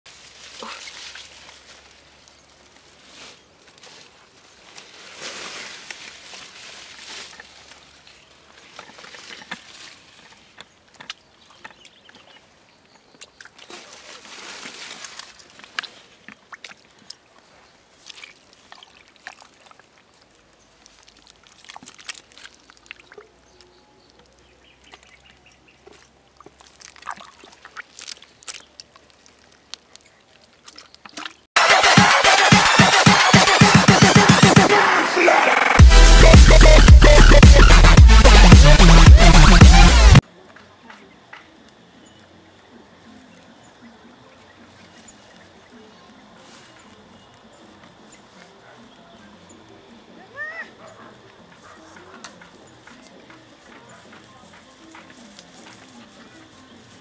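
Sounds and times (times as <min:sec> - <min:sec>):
soil rustling: 0:00.1 - 0:31.8, 0:40.2 - 0:57.0
muddy water sloshing: 0:03.6 - 0:23.6, 0:24.2 - 0:31.5.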